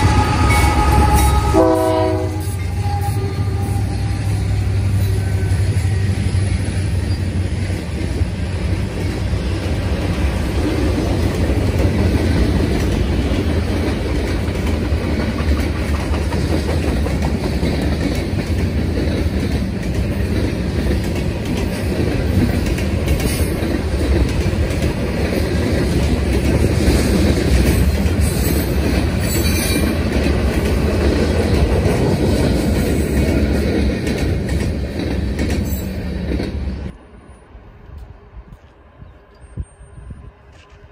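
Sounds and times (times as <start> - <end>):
freight train rumbling past: 0.0 - 40.9
high wheel squeals: 2.4 - 7.6
wheels clacking over rail joints: 4.0 - 36.9.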